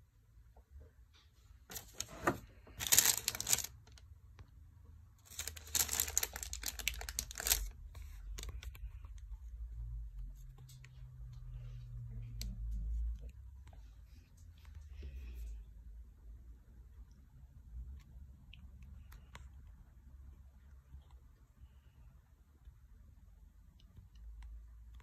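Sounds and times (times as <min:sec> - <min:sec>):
sheet crinkling and rustling: 0:01.7 - 0:04.0, 0:05.2 - 0:08.8.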